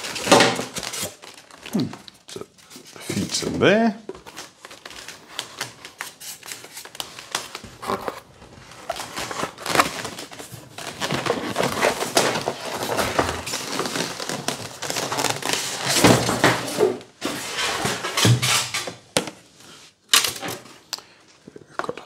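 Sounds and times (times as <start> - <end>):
foam and cardboard creaking: 4.2 - 18.4.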